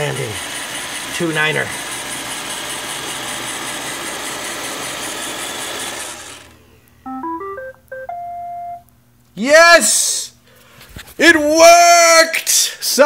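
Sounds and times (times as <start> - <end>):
robot vacuum motors running: 0.0 - 6.6.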